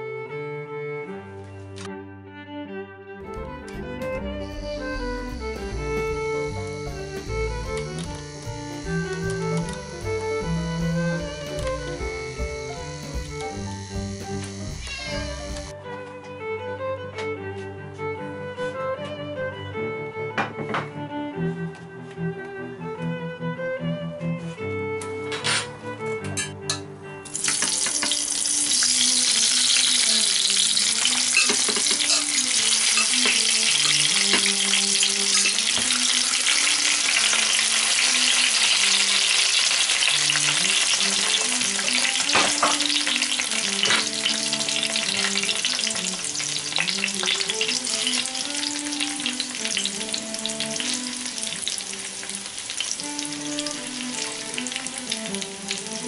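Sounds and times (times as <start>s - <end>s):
soft background music: 0.0s - 56.0s
potatoes sizzling in hot fat: 4.3s - 15.7s, 27.3s - 56.0s.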